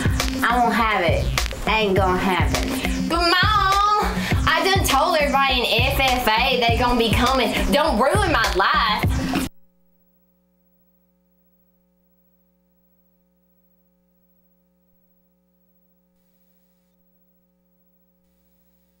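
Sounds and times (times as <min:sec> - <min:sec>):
faint electrical hum: 0:07.8 - 0:19.0.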